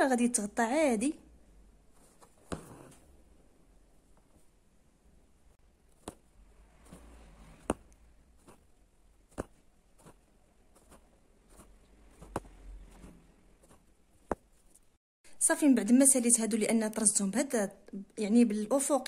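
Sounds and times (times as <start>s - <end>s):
thread rustling through fabric: 1.8s - 3.3s, 5.5s - 15.0s
needle piercing fabric taps: 2.2s - 3.0s, 5.9s - 6.3s, 6.9s - 8.6s, 9.3s - 10.2s, 10.8s - 14.6s.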